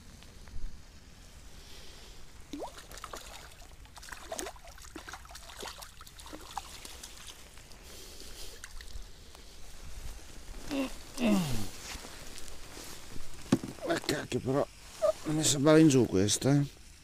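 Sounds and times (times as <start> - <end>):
water splashes and drips: 2.5 - 9.1.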